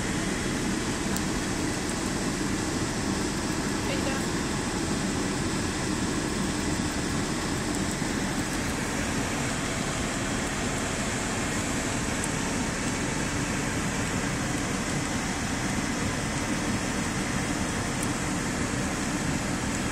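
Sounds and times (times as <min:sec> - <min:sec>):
air-conditioning blower running: 0:00.0 - 0:19.9
car running noise: 0:00.0 - 0:19.9.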